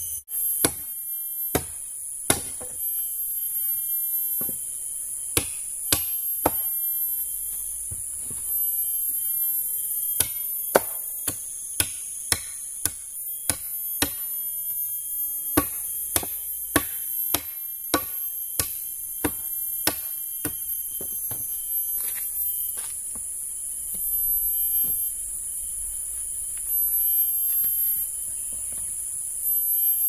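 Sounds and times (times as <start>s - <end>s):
wood chopping blows: 1.5s - 2.8s, 10.2s - 14.3s.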